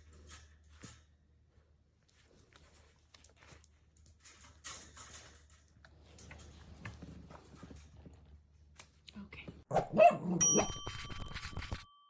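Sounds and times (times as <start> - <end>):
wire pen rattling and scraping: 3.2 - 7.9.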